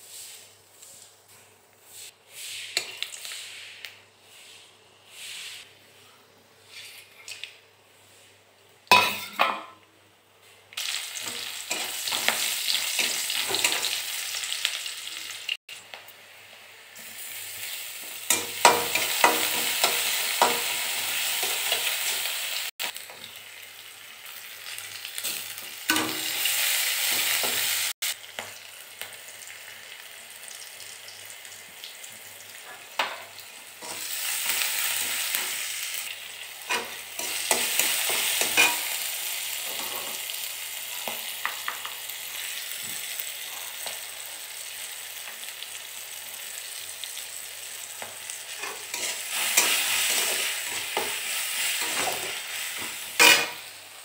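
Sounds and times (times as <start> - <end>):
food sizzling in hot oil: 2.0 - 3.9, 10.8 - 54.0
metal spatula scraping a pan: 25.2 - 27.7, 32.7 - 35.7, 36.6 - 39.1, 48.5 - 53.7.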